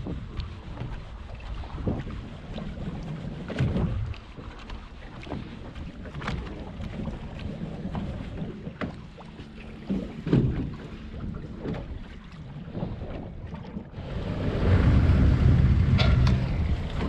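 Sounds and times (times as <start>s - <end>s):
wind and water rumble: 0.0s - 17.0s.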